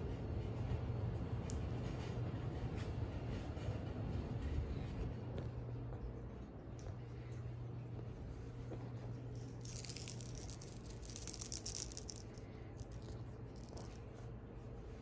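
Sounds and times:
steady low hum: 0.0 - 15.0
cat toy ball rattling and jingling: 9.2 - 14.0.

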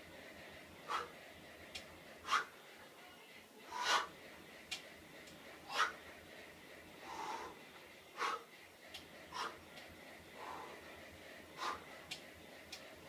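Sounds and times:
man breathing hard: 0.4 - 1.3, 2.1 - 2.6, 3.6 - 4.2, 5.5 - 6.2, 6.9 - 12.3.

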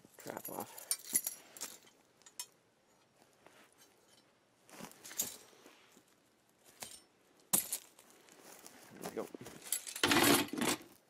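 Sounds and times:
rustling and crunching in dry hay: 4.6 - 6.8, 7.8 - 9.8.

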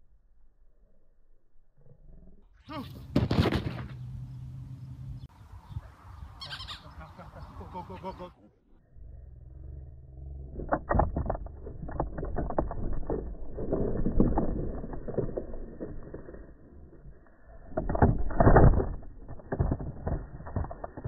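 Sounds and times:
board rattling: 3.0 - 4.0, 10.5 - 21.0.

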